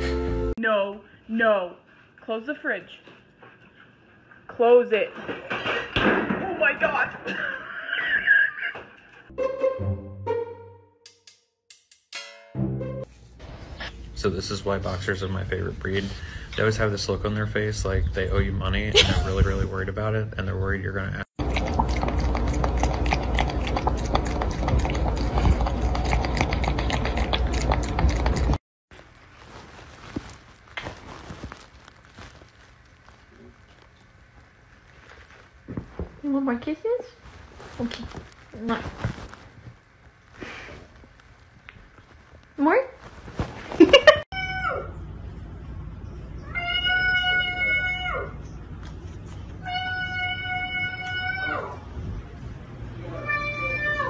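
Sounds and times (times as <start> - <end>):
cat lapping water: 21.4 - 28.6
cat meowing: 46.4 - 48.4, 53.1 - 54.0.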